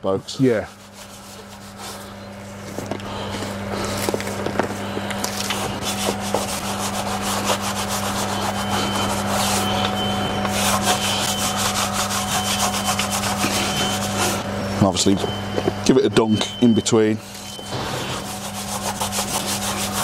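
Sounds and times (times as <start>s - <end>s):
brush scrubbing wheel: 0.0s - 14.4s, 16.6s - 20.0s.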